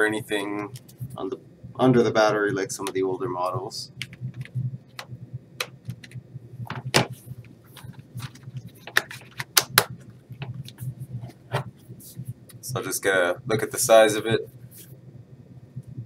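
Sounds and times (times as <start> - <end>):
plastic laptop case clicking: 8.2 - 10.6.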